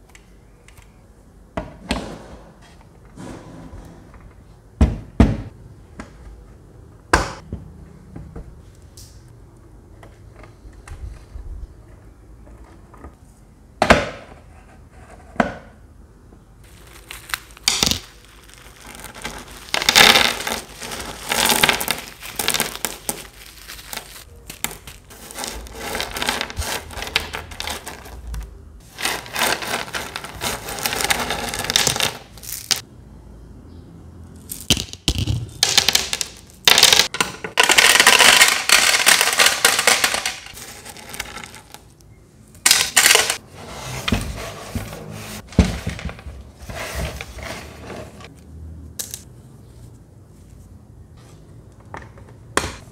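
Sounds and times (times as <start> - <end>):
plastic bag crinkling: 16.6 - 28.2, 28.8 - 32.8, 37.6 - 41.9.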